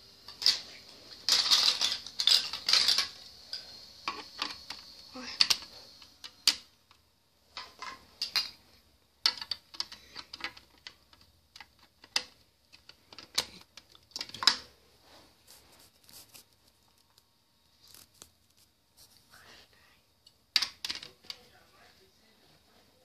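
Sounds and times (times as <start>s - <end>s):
marbles clicking and clattering: 0.3s - 6.7s, 9.2s - 14.6s.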